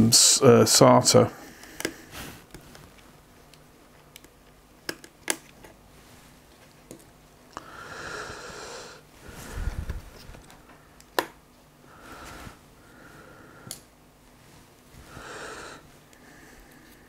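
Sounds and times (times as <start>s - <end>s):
man breathing heavily through nose: 7.6s - 10.1s, 11.8s - 13.8s, 15.0s - 17.0s.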